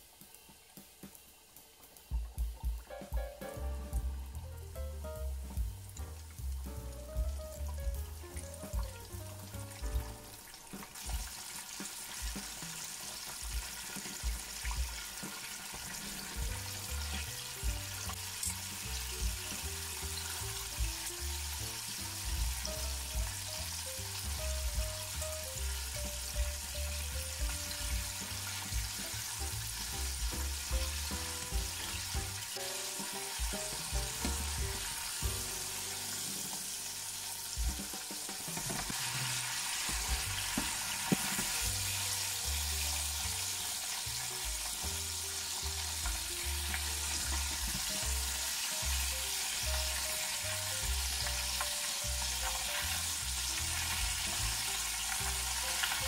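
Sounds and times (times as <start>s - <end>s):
chicken deep-frying in oil: 0.0s - 56.0s.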